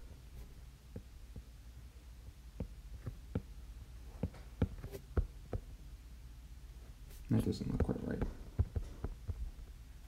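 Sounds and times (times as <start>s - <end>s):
low steady hum: 0.0s - 10.0s
stylus tapping on glass screen: 7.7s - 9.4s.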